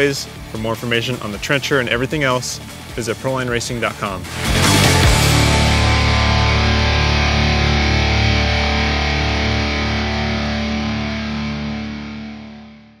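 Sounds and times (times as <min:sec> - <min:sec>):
distorted electric guitar chord ringing: 0:04.3 - 0:13.0.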